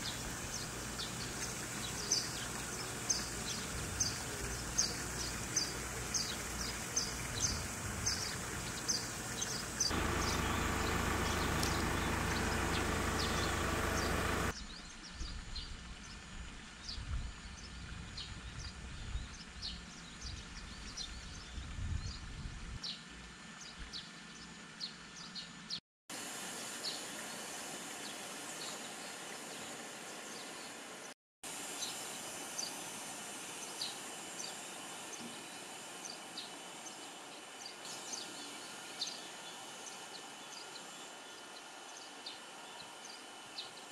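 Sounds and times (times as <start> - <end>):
loud steady noise: 9.9 - 14.5
background hiss: 26.2 - 43.9.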